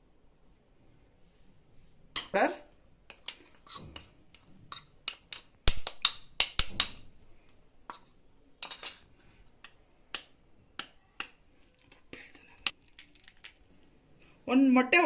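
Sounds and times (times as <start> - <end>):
egg cracking taps: 5.0 - 7.1, 9.6 - 11.9.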